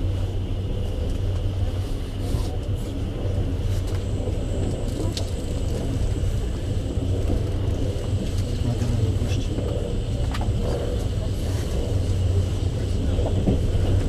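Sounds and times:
railway carriage rumble: 0.0s - 14.0s.

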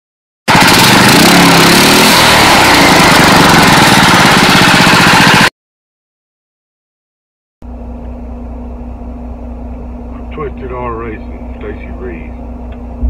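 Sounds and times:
small petrol engine running: 0.5s - 5.5s.

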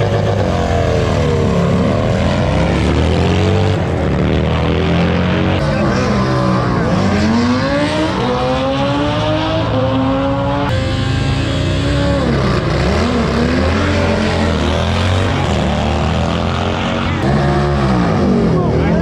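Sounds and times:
motorcycles accelerating at full throttle: 0.0s - 19.0s.

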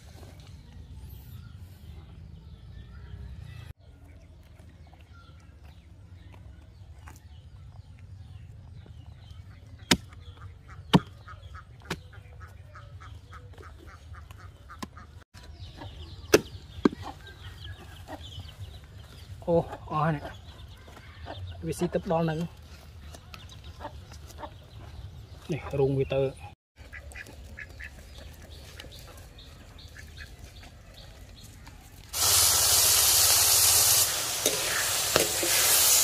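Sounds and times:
birds calling: 0.0s - 36.0s
axe chopping wood: 9.9s - 10.2s, 10.9s - 11.2s.

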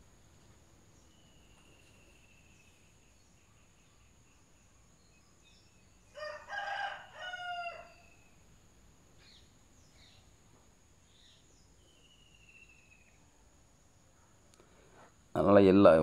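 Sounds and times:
faint high bird calls: 0.4s - 8.4s, 9.1s - 15.0s
rooster crowing: 6.1s - 8.3s.

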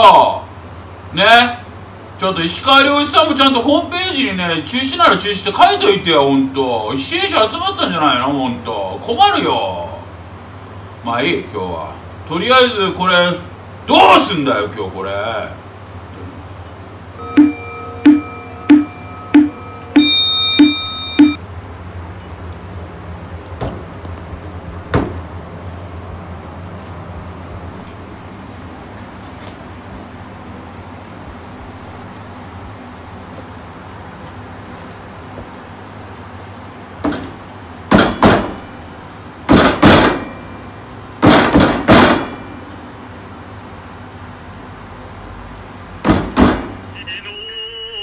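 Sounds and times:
held high tone: 17.1s - 21.4s, 24.4s - 28.8s, 46.8s - 48.0s
short pitched blips: 17.2s - 21.4s
thump on a table: 24.9s - 25.2s.

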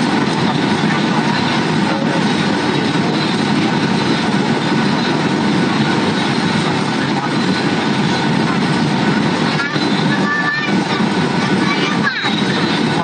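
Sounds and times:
airliner cabin engine rush: 0.0s - 13.0s.

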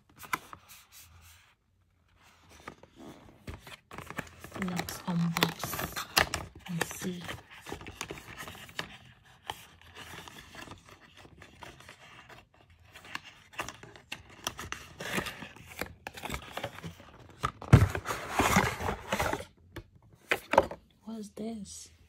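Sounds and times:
packaging clicks and scrapes: 2.2s - 19.6s.

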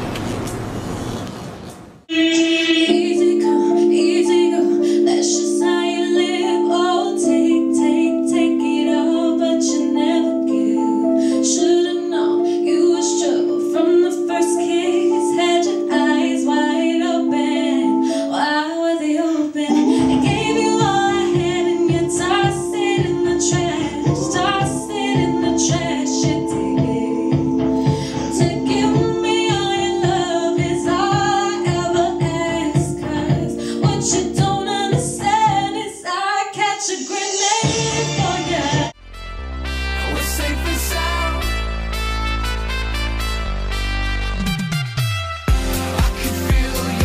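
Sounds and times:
woman singing into a microphone: 2.1s - 39.0s
instrumental backing chords: 2.8s - 35.9s, 37.6s - 47.0s
bass beat: 19.7s - 35.7s, 44.4s - 47.0s.

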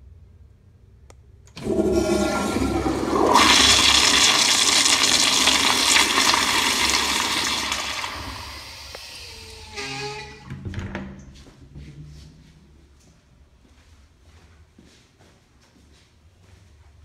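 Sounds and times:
toilet flush click: 1.5s - 9.1s
toilet flushing water rush: 1.6s - 9.6s.

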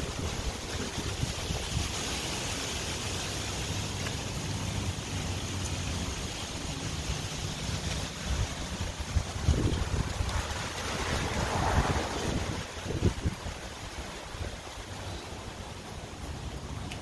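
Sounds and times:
wind noise on microphone: 0.0s - 3.4s, 6.1s - 14.9s.

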